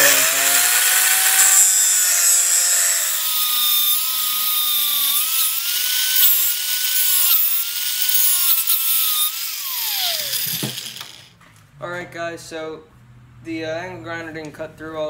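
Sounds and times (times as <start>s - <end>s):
angle grinder cutting metal: 0.0s - 11.4s
grinder blade spinning down: 0.0s - 11.4s.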